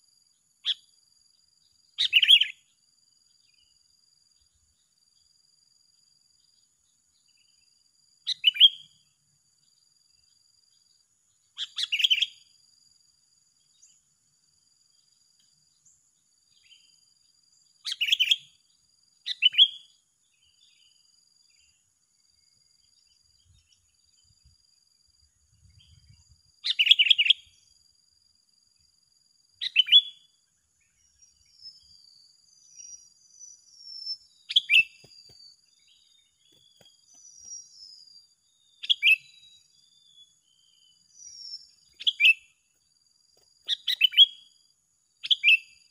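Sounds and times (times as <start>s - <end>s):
soft bird chirps: 0.0s - 27.8s, 29.5s - 45.9s
birds calling: 32.6s - 38.1s.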